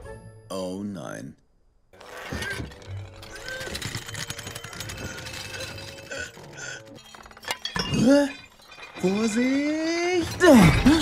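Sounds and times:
dishes and glassware clinking: 2.4 - 11.0.

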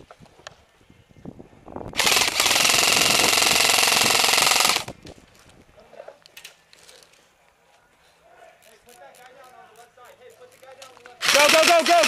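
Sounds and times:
airsoft rifle full-auto burst: 2.0 - 4.9, 11.2 - 12.0.

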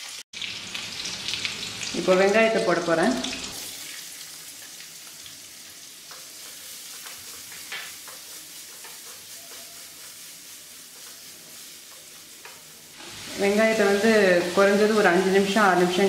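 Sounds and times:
onions sizzling in hot oil: 0.0 - 16.0.

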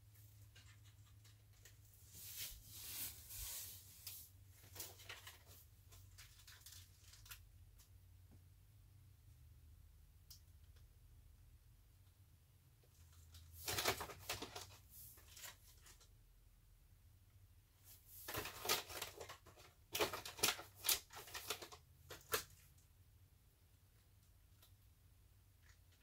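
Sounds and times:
crinkly plastic wrappers: 0.4 - 7.5, 13.4 - 16.1, 18.1 - 22.7
goods rustling in cardboard box: 0.8 - 6.6.

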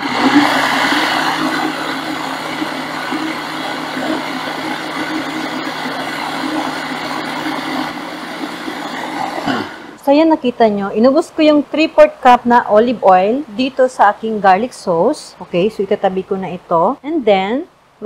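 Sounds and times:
blender running: 0.0 - 10.0.

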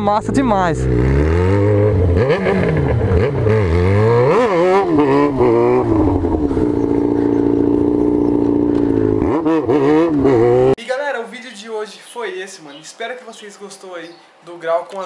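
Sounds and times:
motorcycle engine revving: 0.0 - 10.8.

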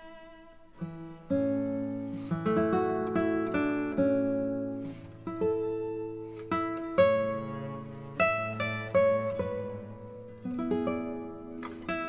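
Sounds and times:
acoustic guitar picking: 0.0 - 12.0.

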